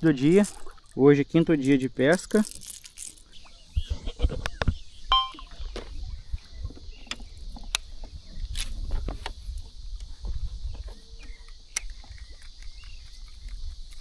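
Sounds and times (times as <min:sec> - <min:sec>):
wind on microphone: 0:03.5 - 0:14.0.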